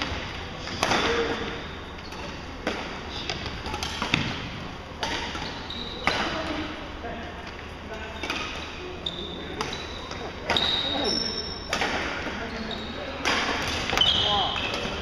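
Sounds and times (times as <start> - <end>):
racket striking shuttlecock: 0.8 - 6.4, 11.7 - 12.2, 13.2 - 15.0.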